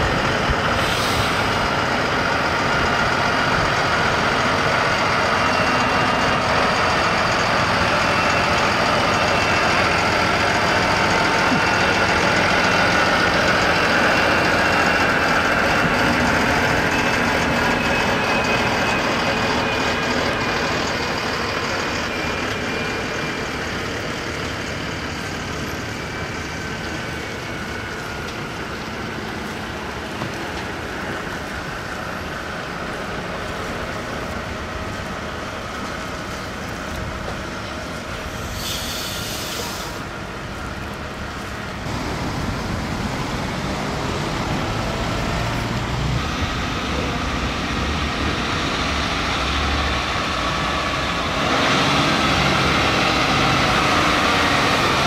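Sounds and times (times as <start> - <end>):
heavy truck engine: 0.0 - 55.0
air brake hiss: 0.7 - 1.6, 38.3 - 40.1.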